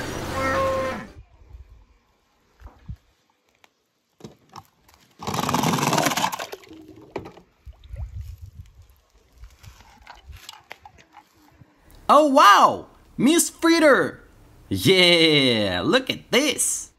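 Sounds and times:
toy cars knocking and scraping: 4.2 - 7.5
toy splashing into water: 5.7 - 8.0.

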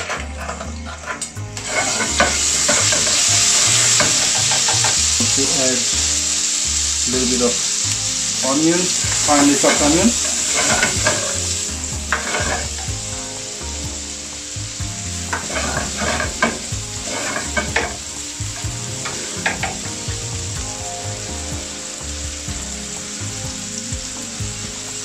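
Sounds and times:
spatula scraping pan: 0.0 - 5.8, 8.9 - 12.9, 15.3 - 18.4
onion sizzling in oil: 0.0 - 25.0.

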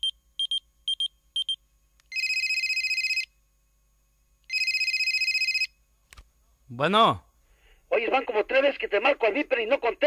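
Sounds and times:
telephone ringing: 2.1 - 3.3, 4.5 - 5.7.

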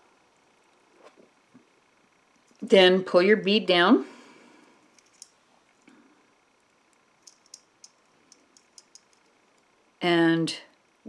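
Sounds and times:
light clicks of wire and beads: 4.9 - 5.4, 6.9 - 9.7.

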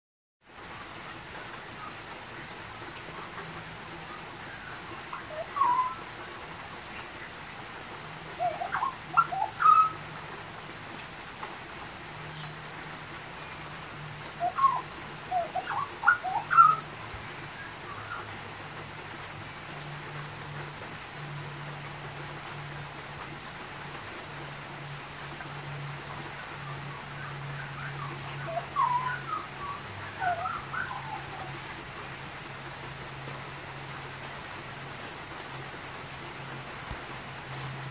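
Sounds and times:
rain hissing: 0.5 - 37.9
bird giving rising call notes: 14.4 - 16.8, 27.6 - 31.6.

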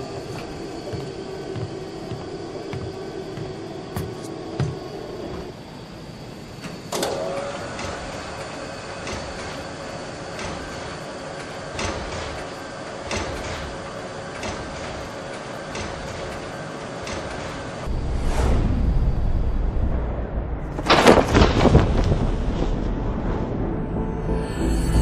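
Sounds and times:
machinery humming: 0.0 - 25.0.

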